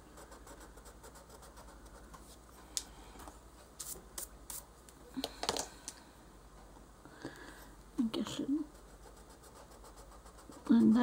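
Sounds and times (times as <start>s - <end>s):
pencil scratching on paper: 0.0s - 2.2s, 8.7s - 11.0s.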